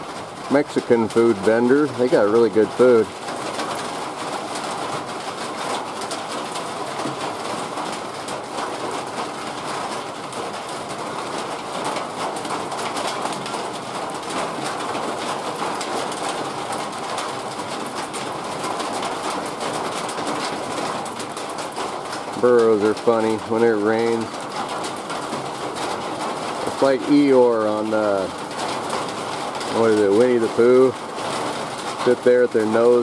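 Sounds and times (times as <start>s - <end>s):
heavy rain: 0.0s - 33.0s.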